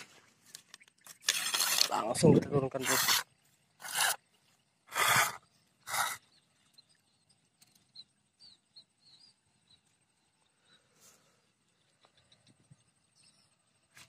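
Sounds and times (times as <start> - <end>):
tall grass rustling: 0.0 - 6.1.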